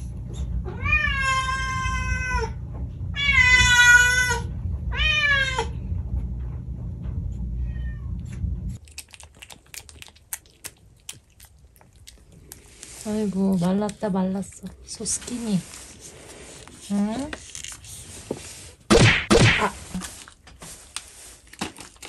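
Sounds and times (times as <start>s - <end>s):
cat meowing: 0.7s - 2.6s, 7.6s - 8.2s
cat licking wet clicks: 8.8s - 12.7s.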